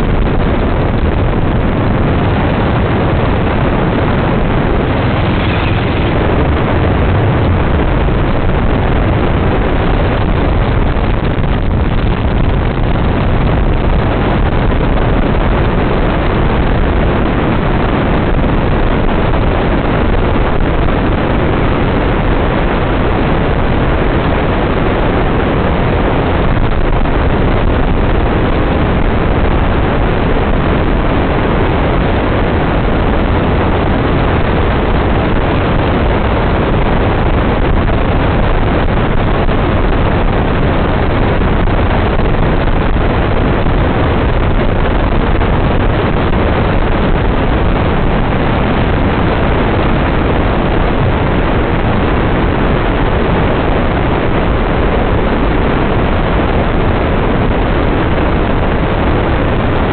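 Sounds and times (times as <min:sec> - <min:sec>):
dune buggy engine running: 0:00.0 - 0:59.9
wind buffeting microphone: 0:00.0 - 0:59.9.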